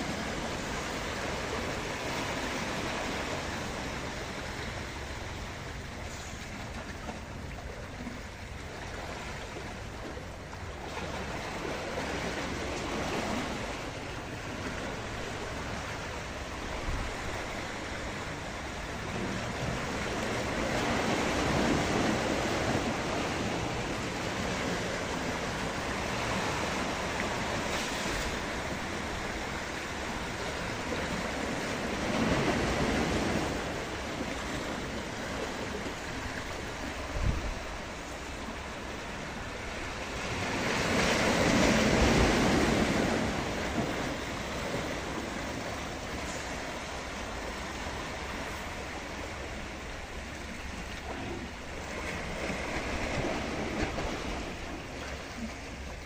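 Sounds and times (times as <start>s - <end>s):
surf splashing against rocks: 0.0s - 56.0s
wind noise on microphone: 30.6s - 38.6s.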